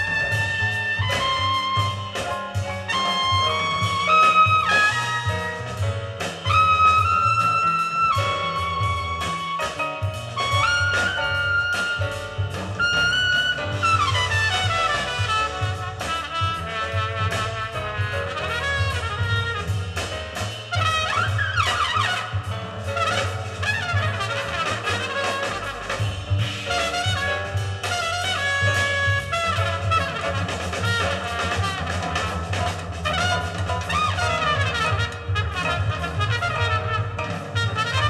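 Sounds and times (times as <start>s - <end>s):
bass line: 0.0s - 38.0s
jazz horn melodies: 0.0s - 38.0s.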